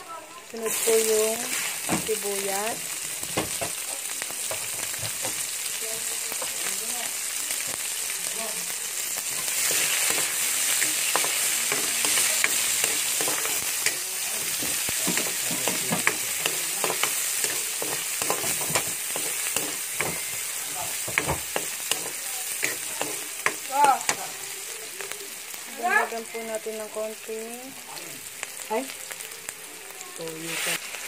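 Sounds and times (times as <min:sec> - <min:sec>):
onion and garlic sizzling in oil: 0:00.0 - 0:31.0
metal spatula scraping a wok: 0:09.3 - 0:24.2, 0:30.4 - 0:31.0.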